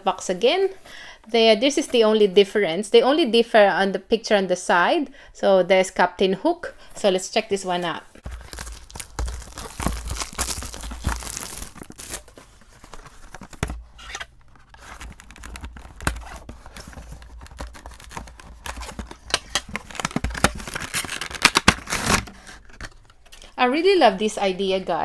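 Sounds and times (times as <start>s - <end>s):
cardboard box tearing and crinkling: 8.2s - 22.7s.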